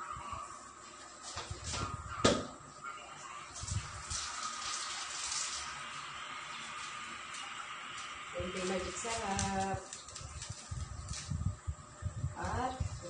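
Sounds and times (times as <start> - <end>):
steady watery hiss: 3.1 - 13.0.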